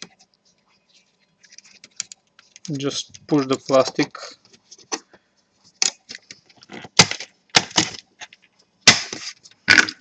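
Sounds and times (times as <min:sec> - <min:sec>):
plastic clicking and cracking: 0:01.5 - 0:05.1, 0:05.8 - 0:08.6.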